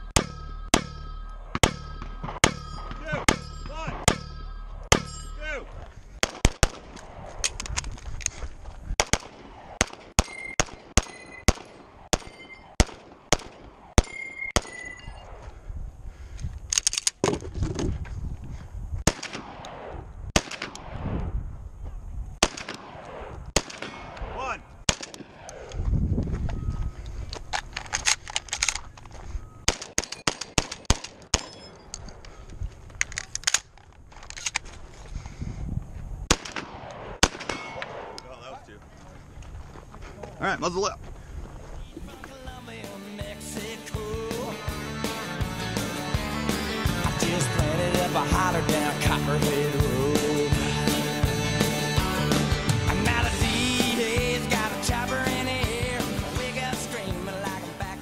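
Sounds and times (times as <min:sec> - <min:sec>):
steel plate ringing: 0:00.0 - 0:05.7.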